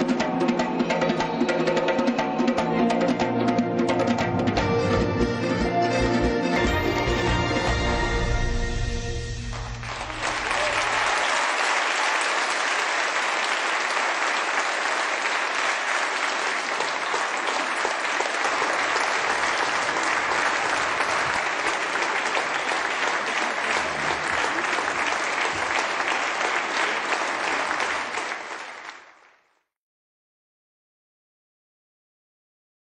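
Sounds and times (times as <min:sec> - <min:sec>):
large audience applauding: 0:09.4 - 0:29.6.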